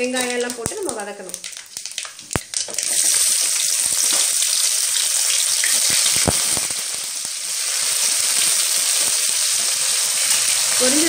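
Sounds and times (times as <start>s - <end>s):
oil sizzling: 0.0s - 11.0s
sharp pops: 0.2s - 3.1s, 5.6s - 7.4s.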